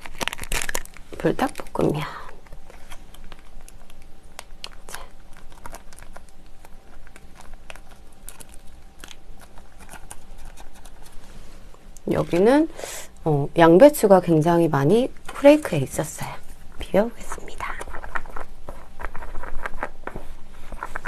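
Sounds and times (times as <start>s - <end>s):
plastic sachet crinkling: 0.0s - 11.2s.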